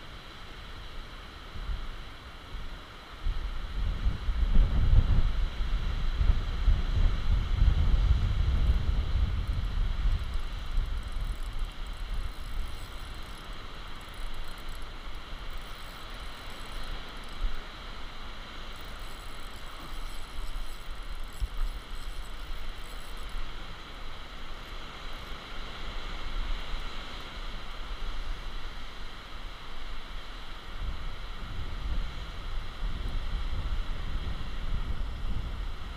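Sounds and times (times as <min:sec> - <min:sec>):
wind buffeting microphone: 0:02.6 - 0:17.7, 0:30.7 - 0:35.9
sea hiss: 0:09.5 - 0:35.9.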